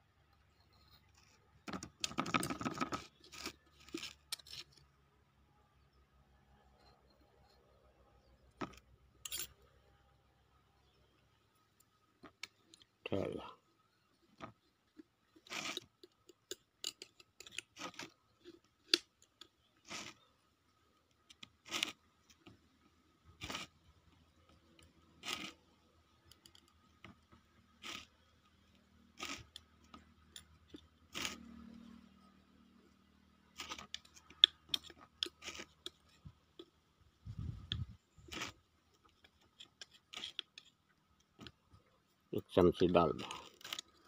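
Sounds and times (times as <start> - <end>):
fingers scraping paste in clay pot: 0.5 - 5.0, 14.4 - 20.4, 21.1 - 22.7, 23.3 - 44.0.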